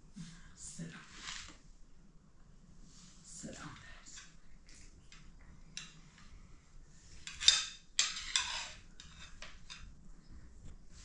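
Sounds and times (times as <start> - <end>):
cutlery clatters: 7.2 - 9.9
metal spoons scraping plates: 7.2 - 9.9.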